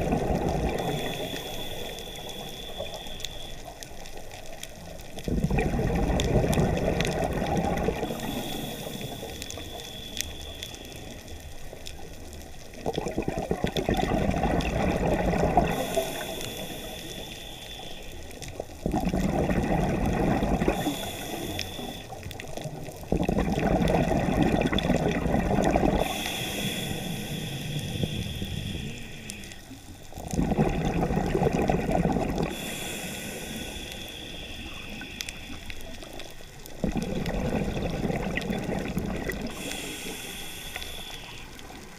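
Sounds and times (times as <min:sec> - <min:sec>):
exhaled bubbles gurgling: 0:00.0 - 0:41.9
hissing regulator inhalations: 0:00.7 - 0:03.9, 0:07.9 - 0:11.8, 0:15.6 - 0:18.6, 0:20.6 - 0:22.4, 0:25.8 - 0:29.8, 0:32.4 - 0:36.6, 0:39.4 - 0:41.9.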